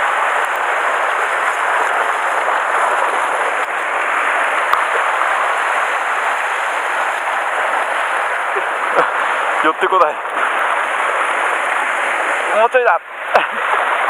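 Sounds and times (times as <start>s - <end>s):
sea surf washing over rocks: 0.0s - 14.0s.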